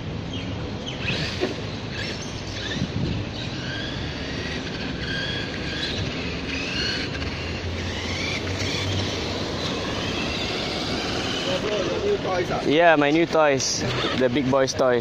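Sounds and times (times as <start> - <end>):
electric motor whine: 1.0 - 12.6.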